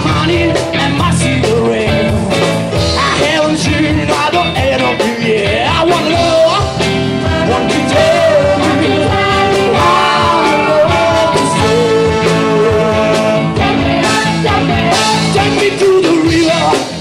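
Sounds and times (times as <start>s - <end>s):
bass: 0.0s - 17.0s
drums: 0.0s - 17.0s
person singing: 0.0s - 17.0s
horn section: 6.1s - 16.9s.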